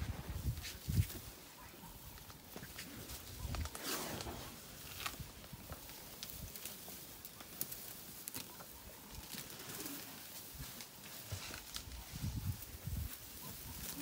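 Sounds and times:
grass rustling and snapping: 0:00.3 - 0:14.0
faint birds calling: 0:01.2 - 0:06.1, 0:08.2 - 0:10.4.

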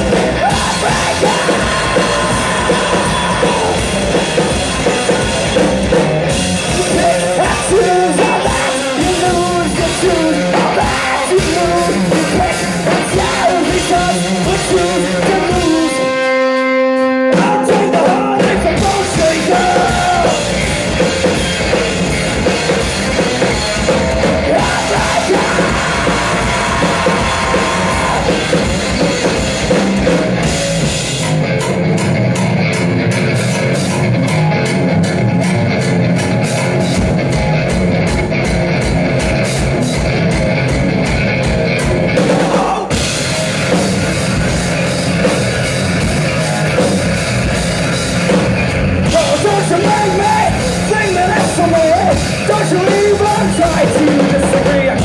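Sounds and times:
lead singer singing: 0:00.0 - 0:05.2, 0:06.6 - 0:20.7, 0:23.2 - 0:29.4, 0:42.2 - 0:43.2, 0:49.0 - 0:55.0
drum kit: 0:00.0 - 0:55.0
electric guitar: 0:00.0 - 0:55.0.

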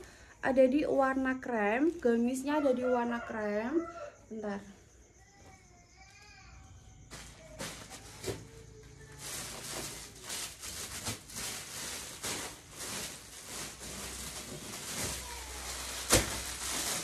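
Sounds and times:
clothes rustling: 0:09.1 - 0:17.0.

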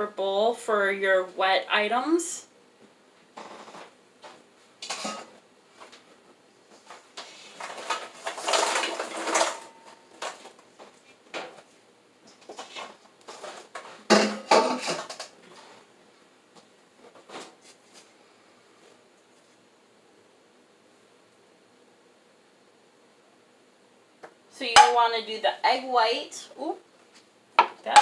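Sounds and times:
dishes clattering: 0:04.8 - 0:05.3, 0:14.0 - 0:15.3.

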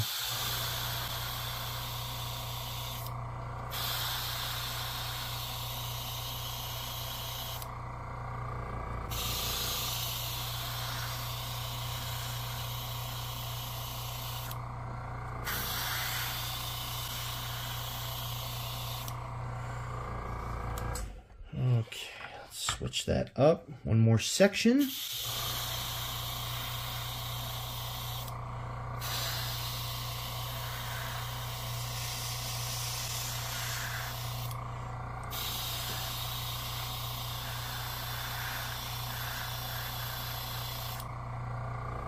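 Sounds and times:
airbrush spraying hiss: 0:00.0 - 0:03.1, 0:03.7 - 0:07.7, 0:09.1 - 0:14.6, 0:15.4 - 0:19.2, 0:24.8 - 0:28.4, 0:29.0 - 0:34.6, 0:35.2 - 0:41.1
low hum: 0:00.4 - 0:22.5.

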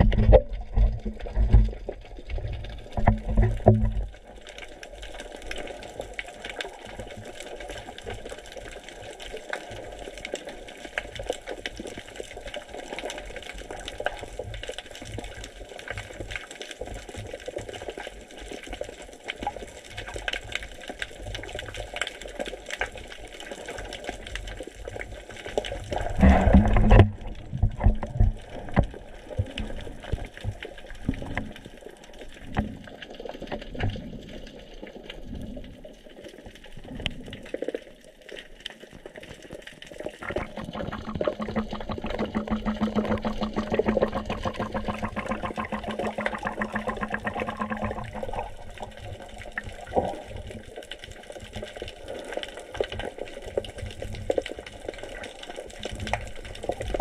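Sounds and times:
underwater water swishes and thumps: 0:00.0 - 0:57.0
pulsing hum: 0:40.2 - 0:48.6.

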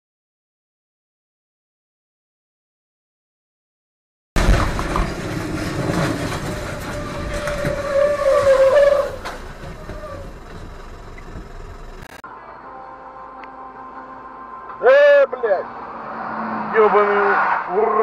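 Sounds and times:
road and spray noise: 0:04.4 - 0:12.5, 0:13.3 - 0:18.0
vehicle hum: 0:04.4 - 0:18.0
wavering screech: 0:05.6 - 0:10.5.

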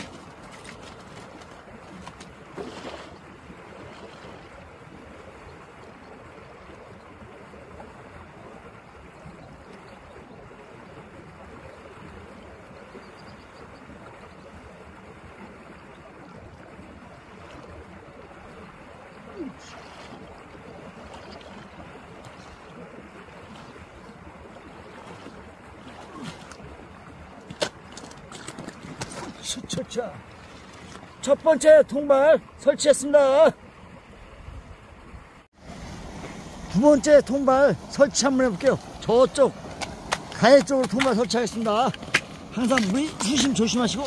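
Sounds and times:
stream rushing over rocks: 0:00.0 - 0:12.8, 0:35.5 - 0:44.0.

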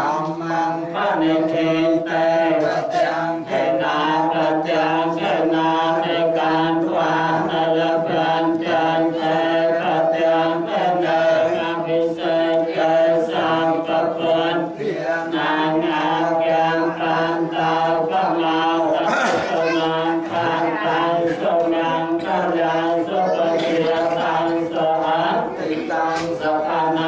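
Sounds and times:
melodic voice chanting: 0:15.8 - 0:27.0.

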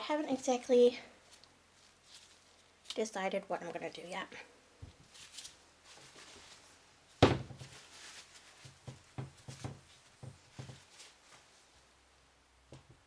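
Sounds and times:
soap bars knocking on table: 0:07.2 - 0:07.6.

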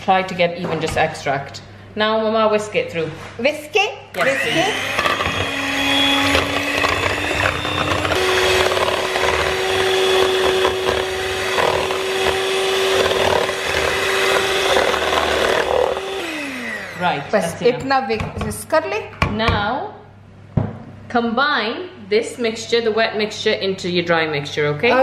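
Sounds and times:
electric hand mixer whining: 0:04.1 - 0:17.8.

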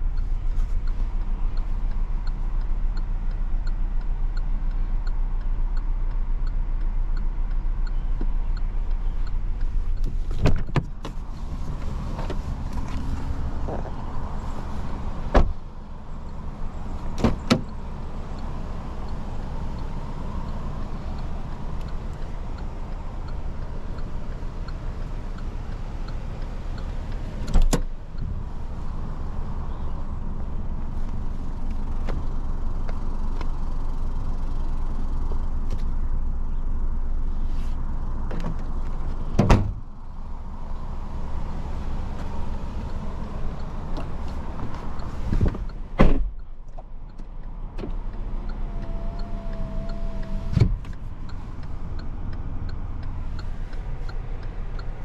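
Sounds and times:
steady low rumble: 0:00.0 - 0:55.0
car door thumping shut: 0:10.4 - 0:11.2, 0:15.3 - 0:15.6, 0:17.2 - 0:17.7, 0:39.3 - 0:39.8, 0:45.4 - 0:46.4, 0:50.5 - 0:50.9
car trunk lid slamming: 0:15.3 - 0:15.6, 0:17.2 - 0:17.7, 0:39.3 - 0:39.8, 0:46.0 - 0:46.3, 0:50.5 - 0:50.8.

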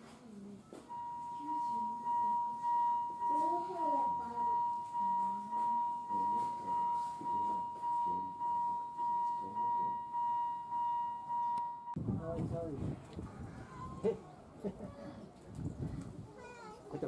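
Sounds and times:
electronic alarm tone: 0:00.9 - 0:12.0
faint human voices: 0:12.2 - 0:17.0.

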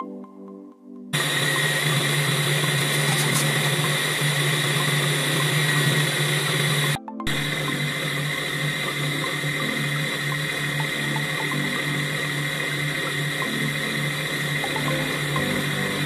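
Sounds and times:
electric mixer motor whining: 0:01.2 - 0:16.0.

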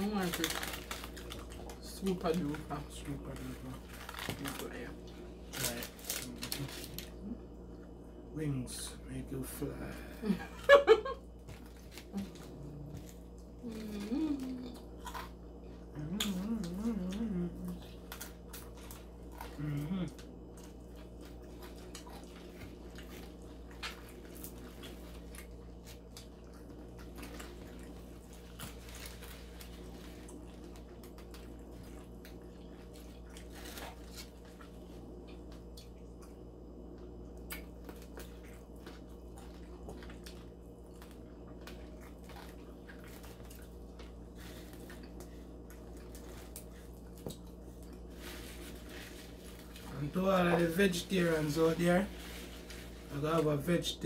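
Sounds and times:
steady low hum: 0:00.0 - 0:54.0
chewing and finger-licking: 0:11.4 - 0:48.1
person humming: 0:13.6 - 0:14.8, 0:15.9 - 0:17.8, 0:19.6 - 0:20.2.

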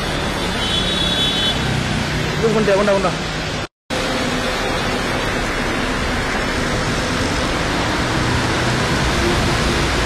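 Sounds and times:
passing traffic: 0:00.0 - 0:10.0
tyres on wet road: 0:00.0 - 0:10.0.

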